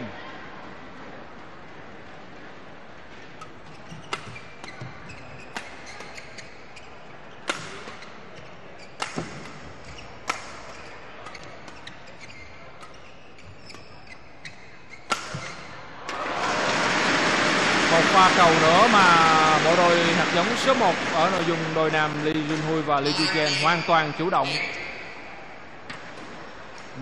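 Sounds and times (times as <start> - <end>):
rackets striking shuttlecock: 3.2 - 6.6, 8.8 - 15.8
crowd cheering and applause: 16.0 - 21.8.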